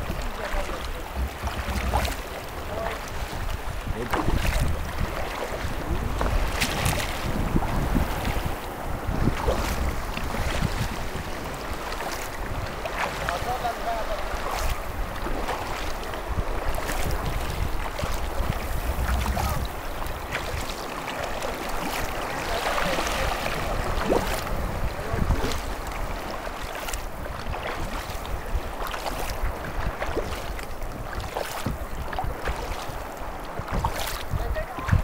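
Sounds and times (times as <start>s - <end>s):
water splashing against kayak: 0.0s - 35.0s
wind rumble on microphone: 0.0s - 35.0s.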